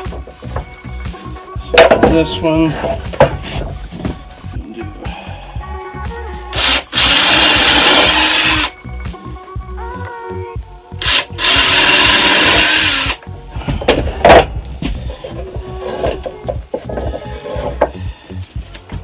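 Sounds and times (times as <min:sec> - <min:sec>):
cordless drill boring into wood: 0:06.5 - 0:08.7, 0:11.0 - 0:13.2.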